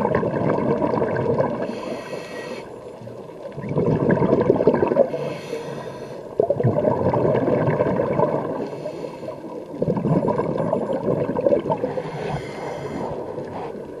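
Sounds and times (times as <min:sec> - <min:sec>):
exhaled bubbles gurgling underwater: 0:00.0 - 0:14.0
regulator inhalation hiss: 0:01.6 - 0:02.8, 0:05.1 - 0:06.3, 0:08.6 - 0:09.5, 0:11.9 - 0:13.8.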